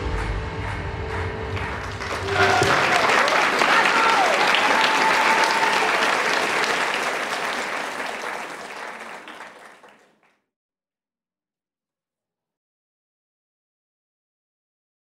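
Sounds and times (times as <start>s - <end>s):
audience applauding: 1.1s - 10.3s.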